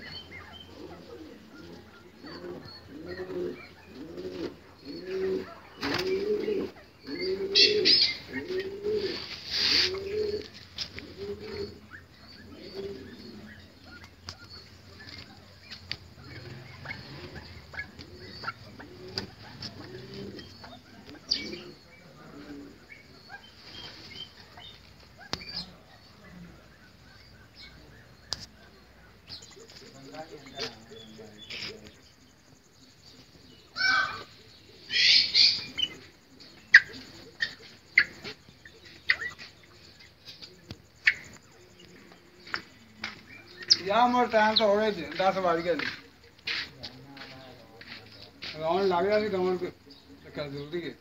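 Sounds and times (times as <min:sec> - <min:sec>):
pigeons cooing: 0:00.0 - 0:51.0
small birds chirping: 0:00.0 - 0:51.0
wings flapping: 0:05.8 - 0:06.4, 0:15.0 - 0:20.4.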